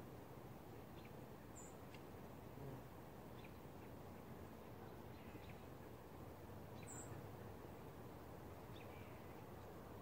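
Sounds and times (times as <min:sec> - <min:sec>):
low background hiss: 0:00.0 - 0:10.0
faint bird chirps: 0:04.8 - 0:05.8, 0:06.7 - 0:07.2, 0:08.7 - 0:09.7.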